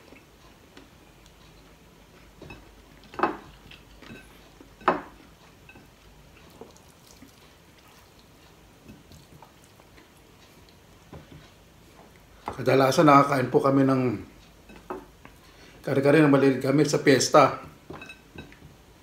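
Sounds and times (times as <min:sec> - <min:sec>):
mouth and chewing noises: 0:00.0 - 0:12.4.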